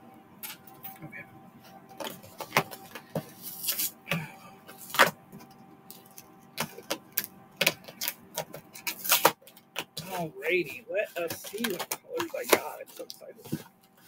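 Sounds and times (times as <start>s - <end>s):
faint steady hum: 0.0s - 14.0s
package crinkling and rustling: 4.7s - 14.0s.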